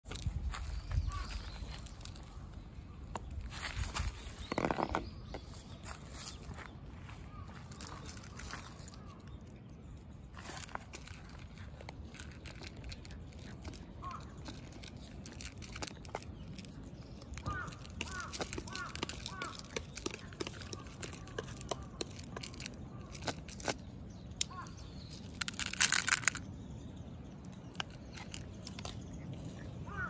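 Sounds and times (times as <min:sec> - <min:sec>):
cat crunching dry kibble: 0:07.6 - 0:26.6, 0:27.4 - 0:29.8
bird calling: 0:13.6 - 0:16.0, 0:16.6 - 0:23.7, 0:27.8 - 0:30.0.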